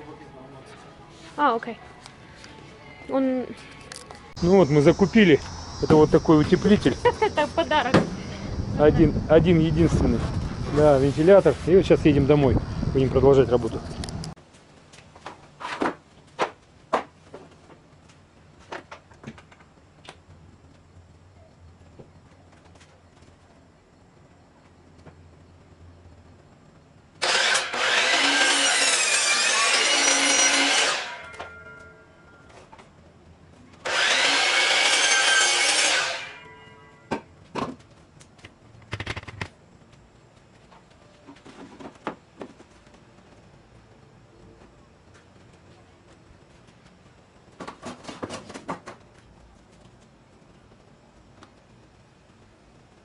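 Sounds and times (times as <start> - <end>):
miter saw cutting wood: 4.4 - 9.2, 27.2 - 31.6, 33.8 - 36.4.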